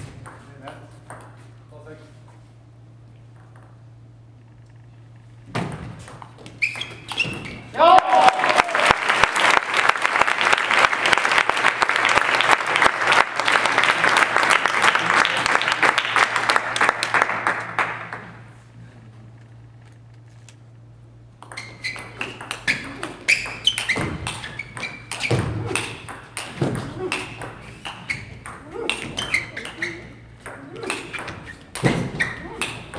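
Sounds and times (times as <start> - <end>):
spectators clapping: 7.8 - 18.5.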